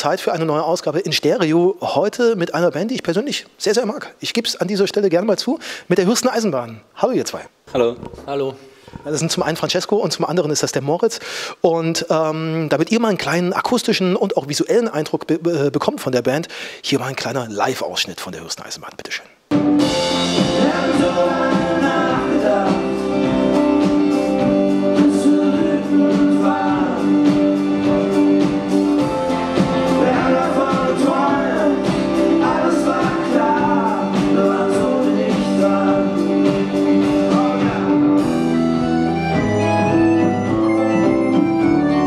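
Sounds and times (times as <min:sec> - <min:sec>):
drums: 0:19.5 - 0:42.0
electric guitar: 0:19.5 - 0:42.0
keyboard chords: 0:19.5 - 0:42.0
person singing: 0:20.0 - 0:39.8.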